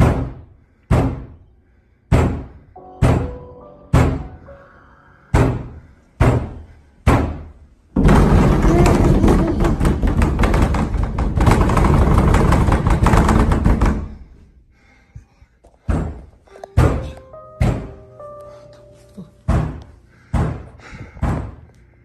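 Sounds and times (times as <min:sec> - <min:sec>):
heavy bangs: 0:05.3 - 0:14.3.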